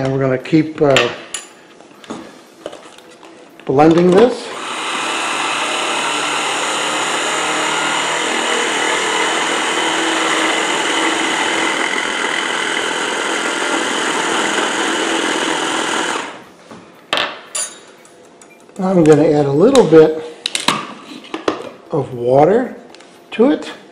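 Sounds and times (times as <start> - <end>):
hand blender motor grinding: 4.5 - 16.4.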